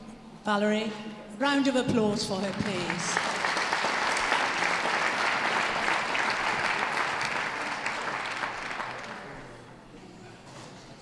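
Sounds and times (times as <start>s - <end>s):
audience applauding: 2.4s - 9.6s.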